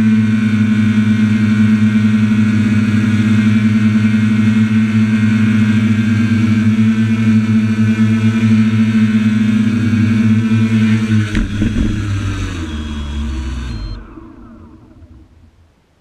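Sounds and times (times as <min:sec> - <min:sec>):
drone propellers buzzing: 0:09.4 - 0:15.8.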